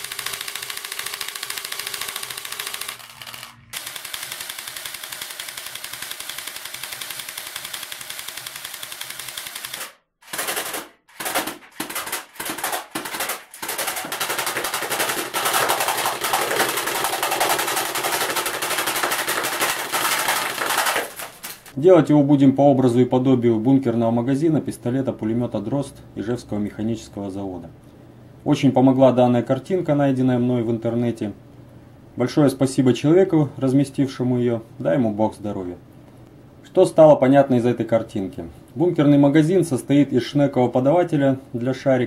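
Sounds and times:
airgun firing full auto bursts: 0.0 - 21.6.

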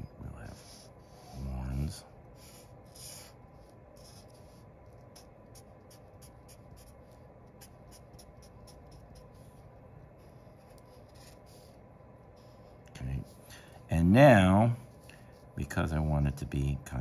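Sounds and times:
marker strokes on paper: 0.5 - 13.4.

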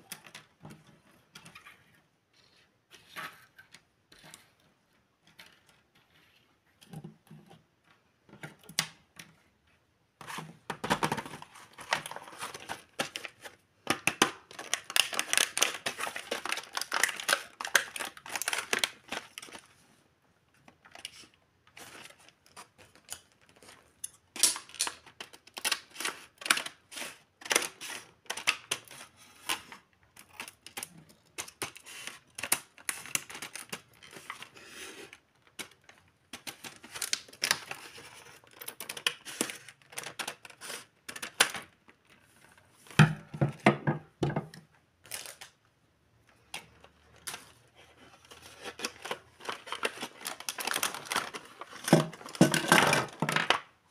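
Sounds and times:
scissors cutting plastic: 11.8 - 19.6, 20.9 - 41.7
plastic bag crinkling: 14.4 - 19.7, 46.6 - 53.6.

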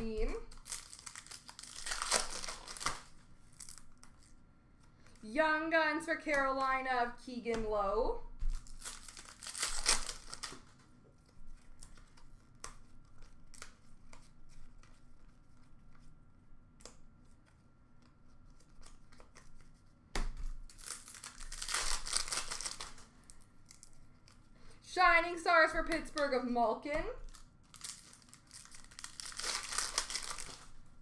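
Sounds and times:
foil wrapper tearing and crinkling: 0.2 - 4.4, 8.5 - 10.8, 20.5 - 24.4, 27.2 - 30.9.

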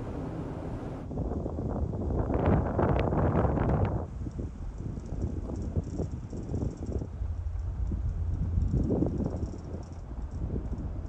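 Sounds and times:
low rumble: 0.0 - 1.0
wind buffeting microphone: 0.0 - 4.1.

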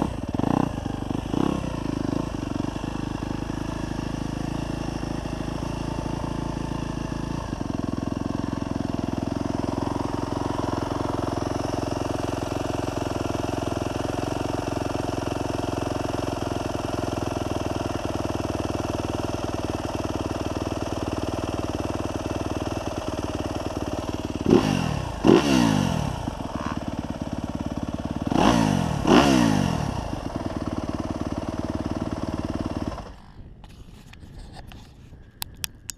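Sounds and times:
motorcycle engine idling and revving: 0.0 - 35.9.

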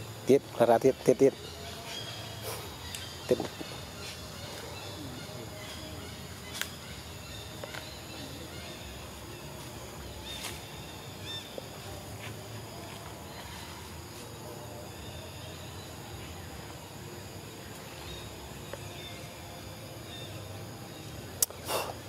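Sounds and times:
insect drone: 0.0 - 22.0.

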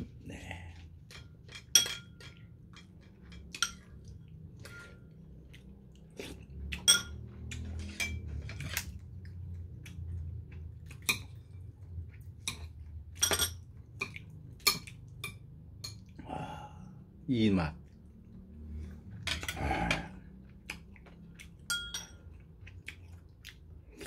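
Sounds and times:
metal spoon clinking on ceramic bowl: 1.1 - 4.0, 6.8 - 7.2, 13.2 - 13.7, 21.7 - 22.2
person chewing: 2.4 - 13.1, 13.7 - 15.2, 17.8 - 24.0.

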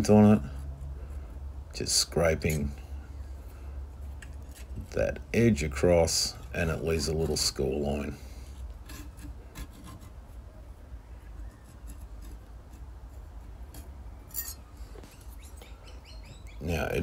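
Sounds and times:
low steady hum: 0.0 - 17.0
metal point scraping steel blade: 8.3 - 10.2, 11.5 - 15.6.

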